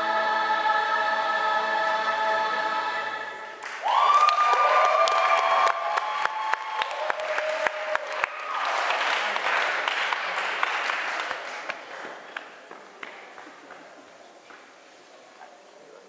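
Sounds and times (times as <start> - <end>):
audience applauding: 3.6 - 12.6.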